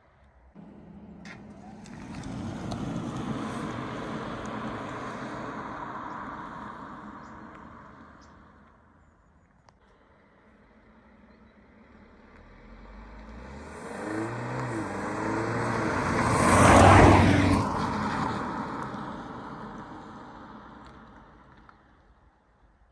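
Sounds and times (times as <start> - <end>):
car accelerating past: 0.6 - 7.9, 12.3 - 19.8.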